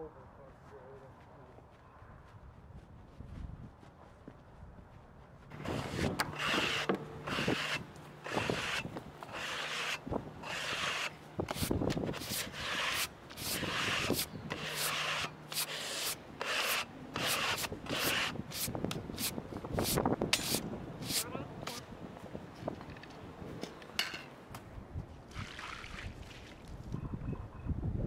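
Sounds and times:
brushes sweeping sawdust off wood: 0:05.5 - 0:21.8.

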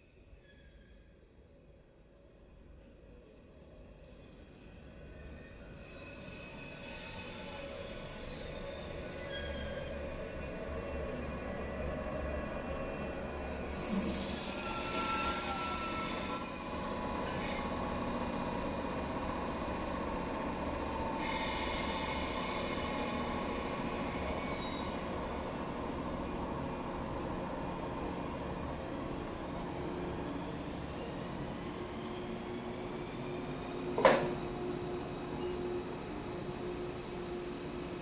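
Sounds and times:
train wheels squealing: 0:00.0 - 0:01.4, 0:04.5 - 0:12.2, 0:12.9 - 0:17.9, 0:21.1 - 0:25.6, 0:30.2 - 0:37.8
rumble of rolling train cars: 0:00.4 - 0:38.0.

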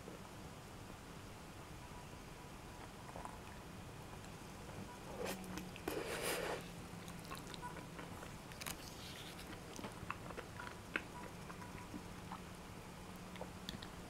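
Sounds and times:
low steady hum: 0:00.0 - 0:14.0
soft squishy handling: 0:05.2 - 0:10.4.

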